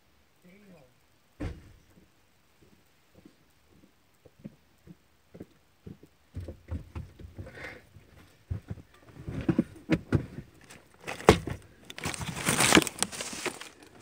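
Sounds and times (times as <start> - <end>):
knocks and rustles in car: 5.9 - 11.6.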